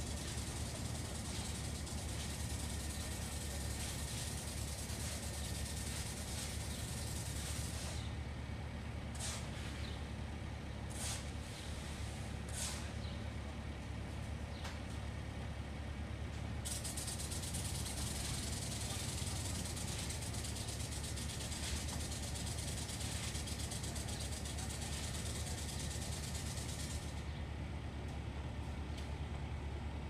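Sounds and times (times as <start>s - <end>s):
rapidly pulsing hiss: 0.0s - 8.1s, 16.7s - 27.2s
machinery low hum: 0.0s - 30.0s.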